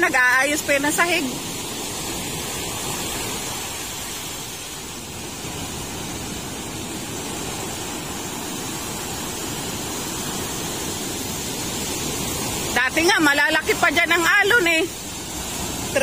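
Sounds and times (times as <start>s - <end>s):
waves breaking on shore: 0.0s - 16.0s.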